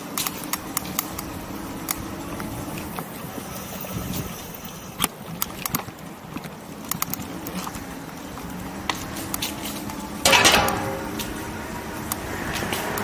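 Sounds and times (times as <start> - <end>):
electric bike humming: 0.0 - 13.0
clicks and rattles: 10.2 - 11.4.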